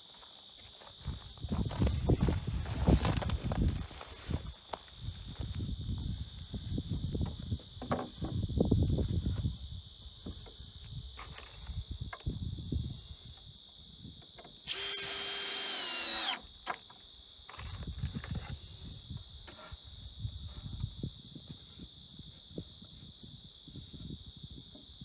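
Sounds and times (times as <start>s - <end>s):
cordless drill driving into wood: 14.7s - 16.5s.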